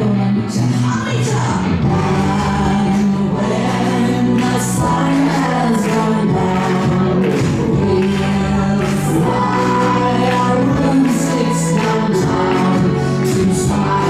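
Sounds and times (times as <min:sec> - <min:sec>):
recorded song with singing: 0:00.0 - 0:14.0.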